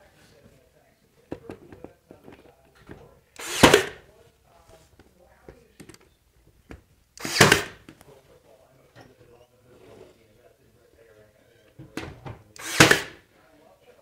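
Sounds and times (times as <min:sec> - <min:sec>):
brad nailer shots: 0:03.4 - 0:04.0, 0:07.2 - 0:07.8, 0:12.6 - 0:13.2.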